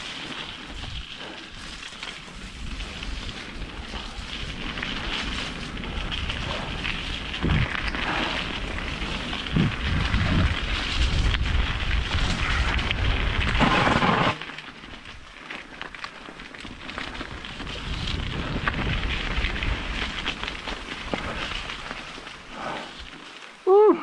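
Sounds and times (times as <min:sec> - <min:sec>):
bike tyres rolling on gravel: 0:00.0 - 0:24.0
wind rushing: 0:05.8 - 0:14.4.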